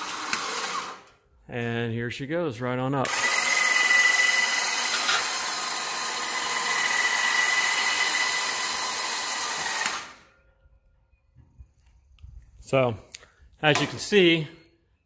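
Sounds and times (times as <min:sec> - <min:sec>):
electric winch whining under load: 0:00.0 - 0:01.2, 0:03.0 - 0:10.4.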